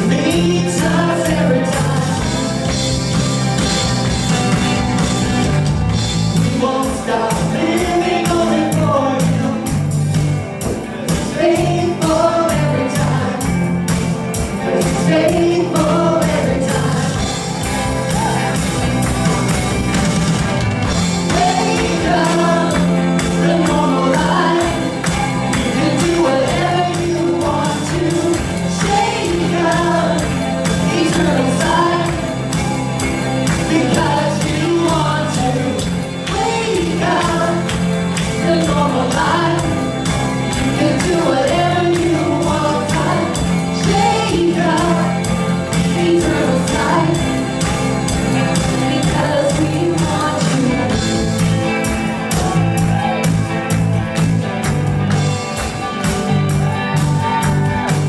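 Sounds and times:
bass notes: 0.0s - 58.0s
electric guitar: 0.0s - 58.0s
women singing into microphones: 11.2s - 13.4s, 14.7s - 17.2s, 21.3s - 25.0s, 25.7s - 32.3s, 33.7s - 39.8s, 40.8s - 45.2s, 45.8s - 47.3s, 48.7s - 50.9s.

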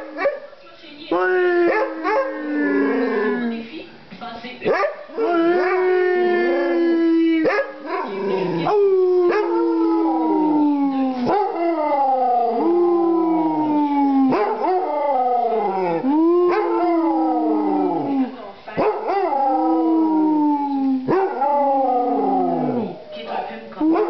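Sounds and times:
dog howling: 5.2s - 24.0s.

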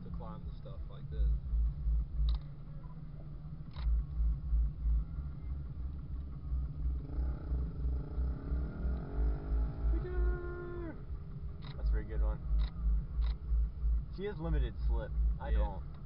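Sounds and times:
low thumps: 3.6s - 16.0s
engine revving under load: 6.5s - 11.8s.

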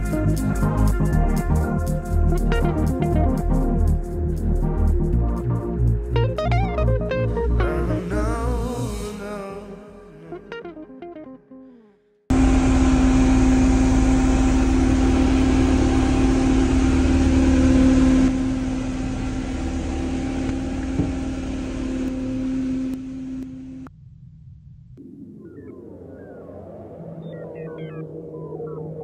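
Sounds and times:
guitar music: 0.0s - 8.7s, 10.2s - 11.8s
boat engine droning: 12.3s - 23.9s.

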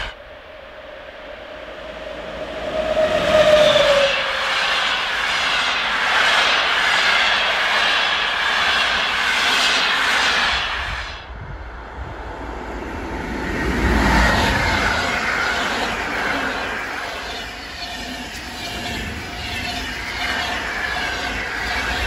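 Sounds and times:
approaching train rumble: 0.0s - 22.0s
express train rushing past: 0.0s - 22.0s.

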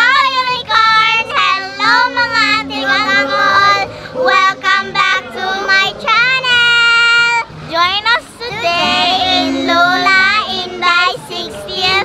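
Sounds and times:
child singing: 0.0s - 12.0s.

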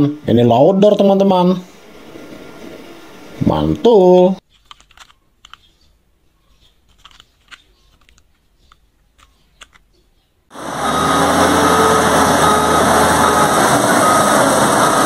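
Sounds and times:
loud engine-like rumble: 10.5s - 15.0s.

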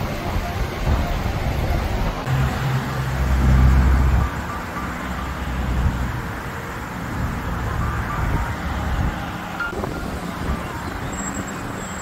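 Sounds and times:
wind buffeting microphone: 0.0s - 2.6s, 7.1s - 12.0s
road traffic: 0.0s - 12.0s.

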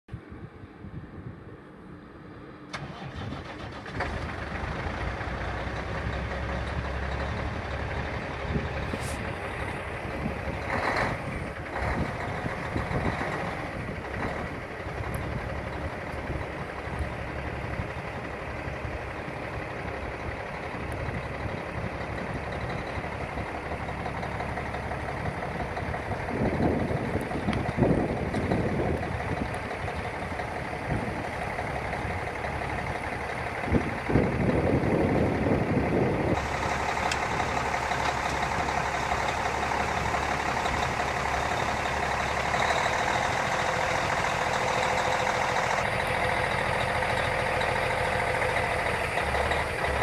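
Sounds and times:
diesel engine cranking and idling: 0.2s - 50.0s.

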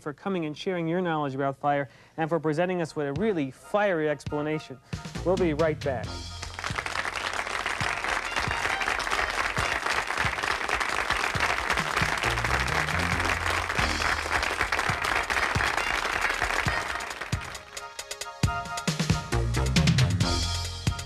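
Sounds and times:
break music with low bass notes: 4.3s - 21.0s
studio audience applauding: 6.3s - 18.3s.

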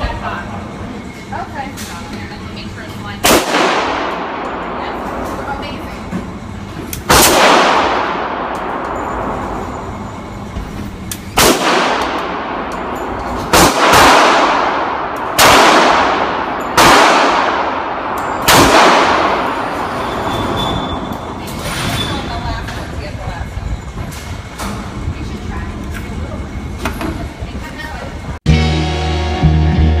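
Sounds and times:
pistol shots echoing: 3.2s - 5.1s, 7.1s - 9.3s, 11.4s - 12.9s, 13.5s - 19.8s.

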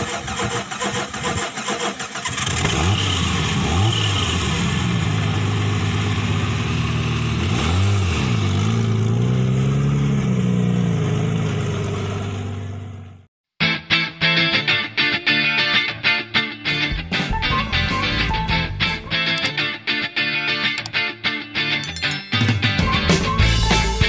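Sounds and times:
car engine starting and revving: 0.0s - 13.2s.

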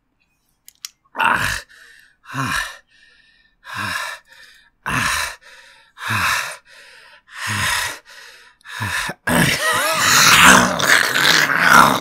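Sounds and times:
gasping breath: 1.4s - 10.7s
person retching: 9.2s - 12.0s.

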